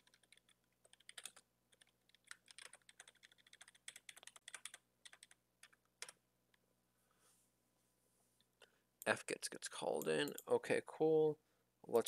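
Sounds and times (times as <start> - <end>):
typing on computer keyboard: 0.0 - 6.2.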